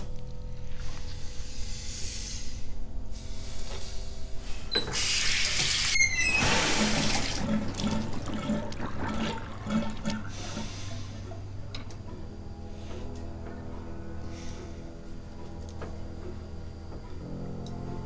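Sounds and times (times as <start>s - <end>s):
water running into a sink: 5.5s - 10.6s
drain gurgling: 6.4s - 10.7s
low steady hum: 6.5s - 18.0s.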